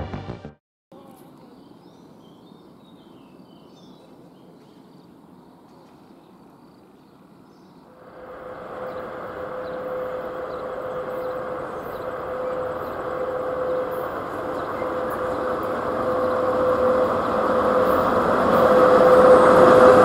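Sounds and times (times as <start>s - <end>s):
freight train rumble: 3.9s - 20.0s.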